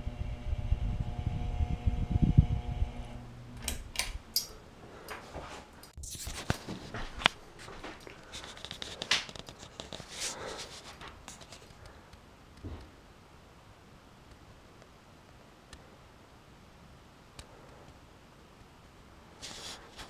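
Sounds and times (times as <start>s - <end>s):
ceiling fan motor humming: 0.0s - 5.9s.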